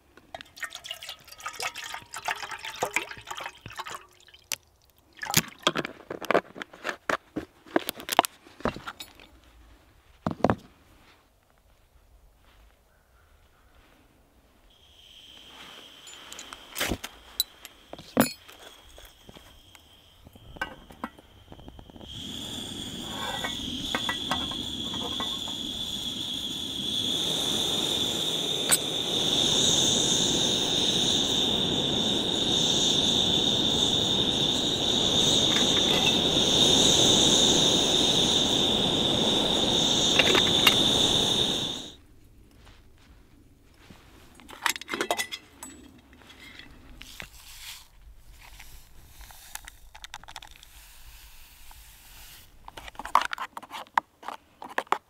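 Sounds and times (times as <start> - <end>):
metal pot clinks: 0.3 - 3.9
gas burner hissing: 14.7 - 42.0, 47.2 - 52.9
high steady whine: 14.8 - 42.0
igniter sparks scraping: 14.9 - 42.0, 47.0 - 53.2.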